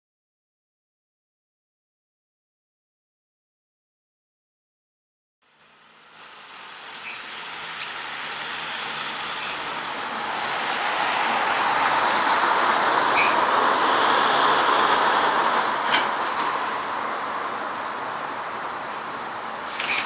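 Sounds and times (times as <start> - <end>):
vehicle passing close by: 7.4 - 20.0.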